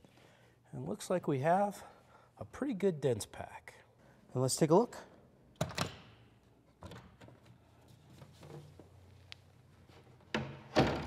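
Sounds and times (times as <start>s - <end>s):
metal latches clicking open: 5.6s - 6.2s.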